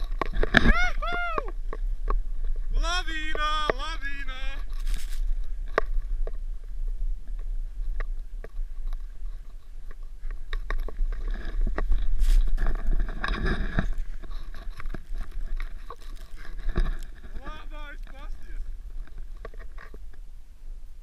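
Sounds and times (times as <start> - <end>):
wind rumble on microphone: 0.0 - 21.0
snow crunching and scraping: 2.4 - 6.2, 7.1 - 20.1.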